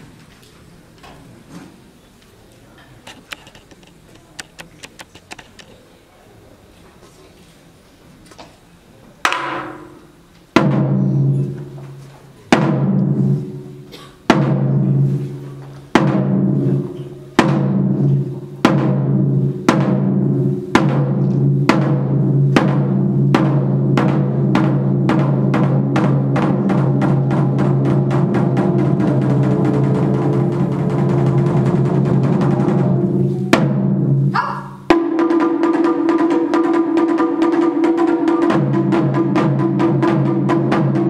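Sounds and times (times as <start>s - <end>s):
taiko drums booming: 9.2s - 41.0s.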